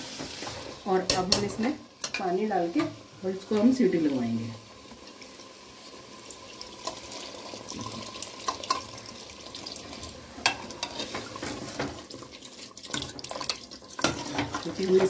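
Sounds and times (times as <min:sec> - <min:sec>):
water pouring into a pot: 0:04.7 - 0:15.0.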